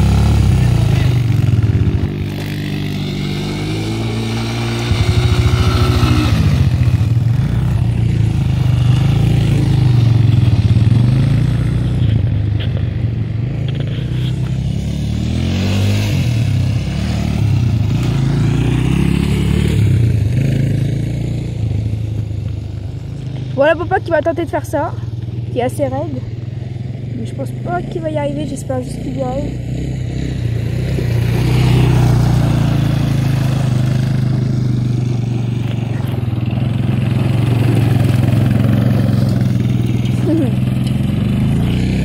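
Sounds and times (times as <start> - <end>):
quad bike engine revving: 0.0 - 42.0.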